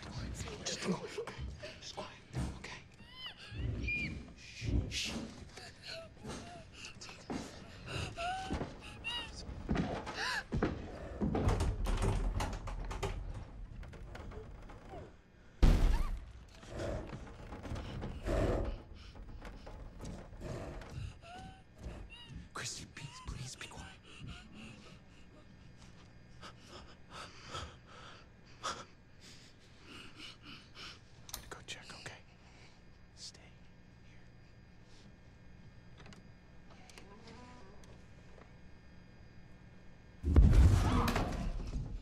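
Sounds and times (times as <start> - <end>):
knocks and bangs: 15.6 - 21.2.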